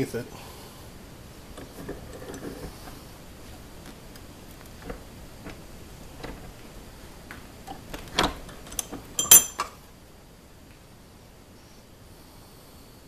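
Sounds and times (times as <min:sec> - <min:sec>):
steel tools clinking on metal: 0:08.7 - 0:09.7.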